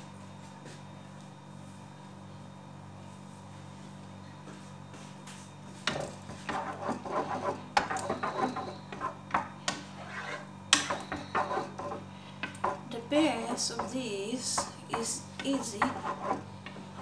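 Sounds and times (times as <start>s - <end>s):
wooden spoon scraping pot: 5.8s - 17.0s.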